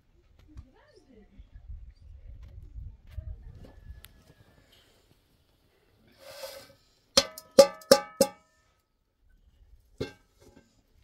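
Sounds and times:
metal pot lid clanking: 0:07.2 - 0:08.4.

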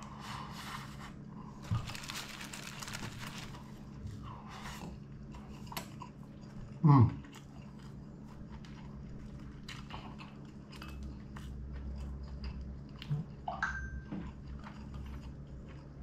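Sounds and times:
chewing crispy fried chicken: 0:04.6 - 0:13.5, 0:14.2 - 0:16.0.

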